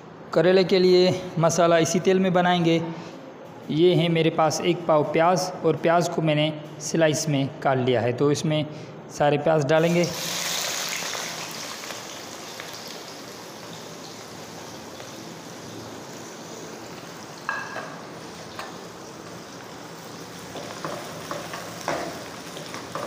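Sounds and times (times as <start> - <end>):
onions sizzling in oil: 10.1 - 23.0.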